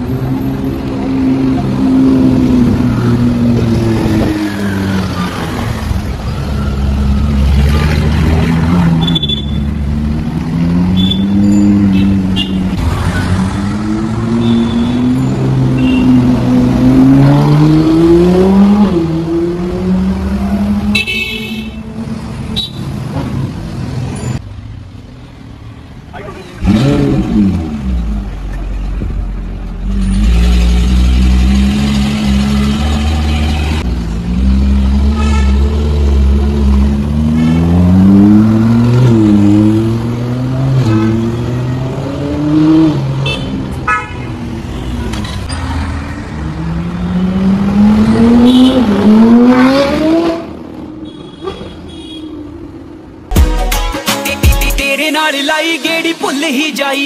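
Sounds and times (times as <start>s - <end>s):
sports car engines accelerating: 46.3s - 50.8s.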